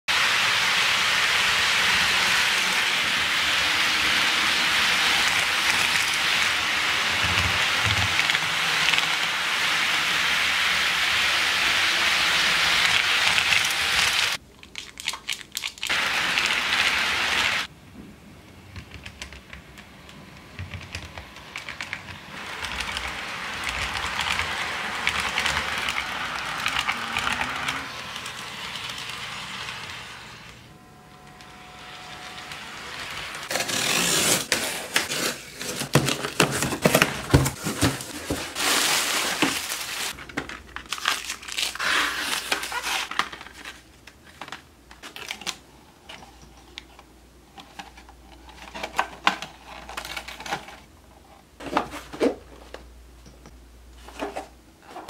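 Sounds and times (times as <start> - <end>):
model train wheels rolling on track: 0.2 - 14.4, 20.0 - 34.0.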